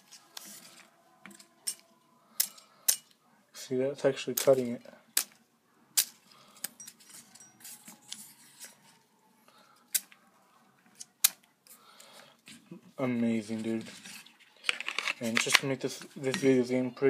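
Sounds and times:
faint paper rustling: 0.0 - 2.1, 6.2 - 16.8.

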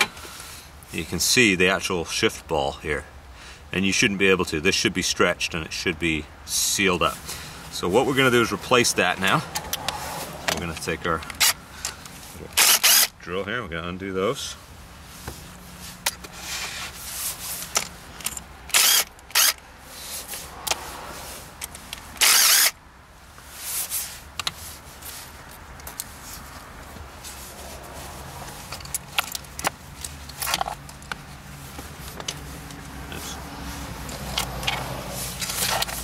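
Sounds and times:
power drill running in bursts: 12.6 - 13.1, 18.7 - 19.6, 22.2 - 22.7.

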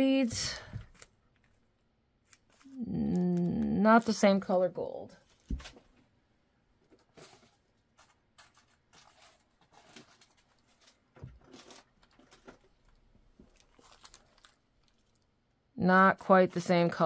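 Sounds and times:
beads clicking and rustling: 8.0 - 15.3.

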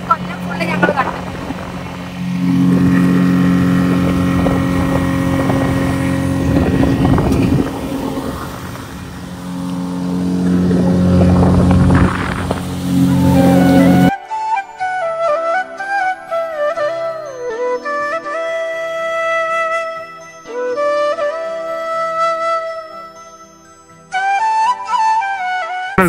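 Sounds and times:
motorboat engine droning: 0.0 - 14.1
rush of noise: 0.0 - 14.1.

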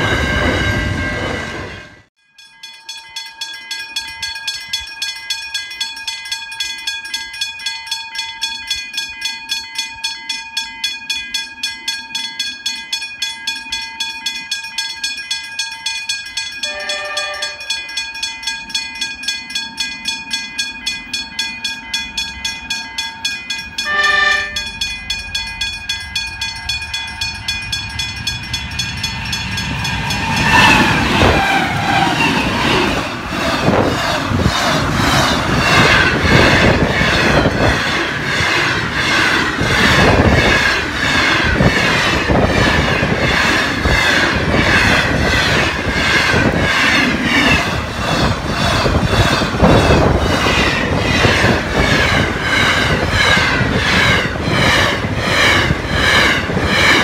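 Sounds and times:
level crossing bells ringing: 2.2 - 47.9
wagons clickety-clack over rail joints: 2.5 - 57.0
train horn blast: 16.6 - 17.7, 23.8 - 24.7, 30.2 - 32.8
locomotive engine and wheel rumble: 17.5 - 57.0.

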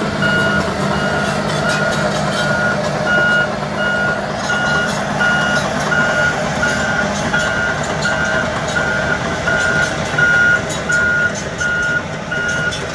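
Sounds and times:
diesel engine running: 0.0 - 12.9
reversing alarm beeping: 0.0 - 12.9.

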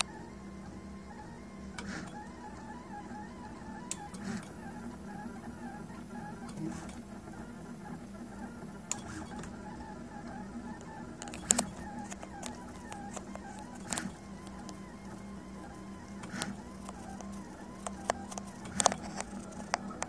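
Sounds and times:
stepper motors whirring: 0.0 - 20.0
printer clicks: 8.8 - 20.0.

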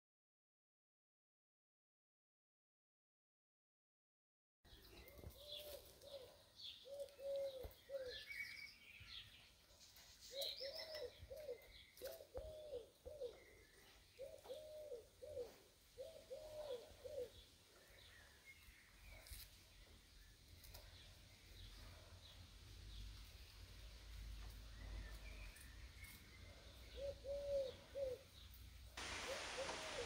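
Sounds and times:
small birds chirping: 4.7 - 30.0
dove cooing: 5.1 - 8.4, 10.3 - 13.6, 14.2 - 17.4, 26.5 - 28.4, 29.0 - 30.0.

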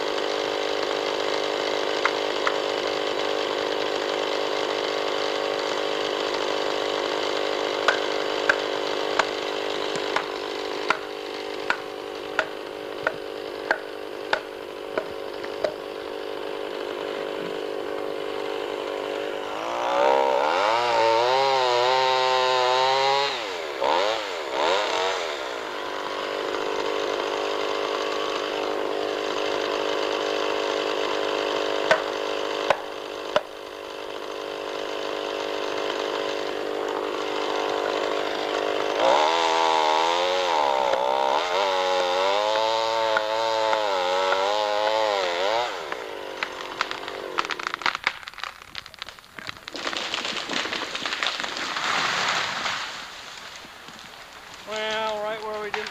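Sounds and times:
chainsaw cutting wood: 0.0 - 55.9.

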